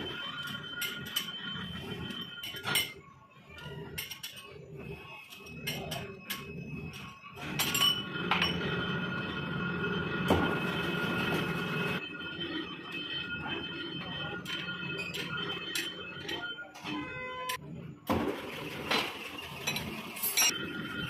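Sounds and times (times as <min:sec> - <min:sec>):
workshop machinery whine and hum: 0:00.0 - 0:21.0.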